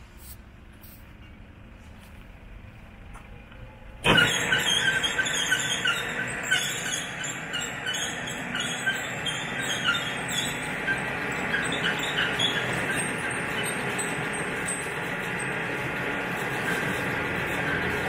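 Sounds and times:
short high squeak: 4.0s - 15.5s
band saw running: 4.0s - 18.0s.

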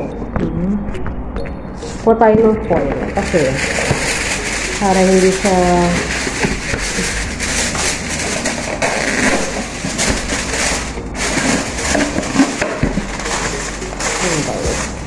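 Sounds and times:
aluminium foil crinkling: 3.0s - 15.0s.

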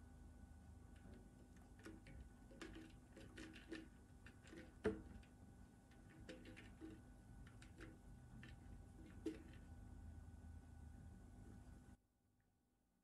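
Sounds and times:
plastic bottle tapping: 4.5s - 5.2s.

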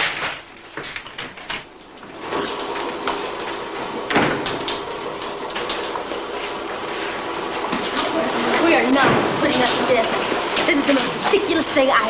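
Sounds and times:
machinery humming: 1.4s - 12.0s
door banging shut: 4.0s - 4.9s.

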